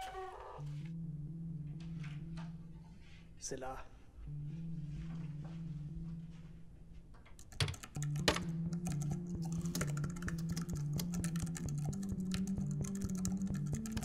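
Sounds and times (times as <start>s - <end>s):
background music low notes: 0.0s - 14.0s
computer keyboard typing: 7.4s - 14.0s.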